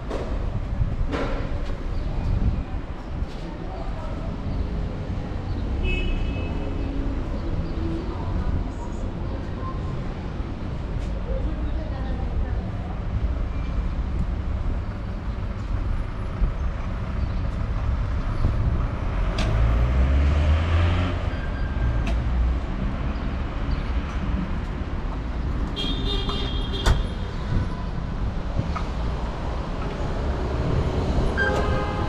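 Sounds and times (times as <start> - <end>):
street traffic: 0.0 - 32.0
high-pitched car horn toot: 31.4 - 32.0.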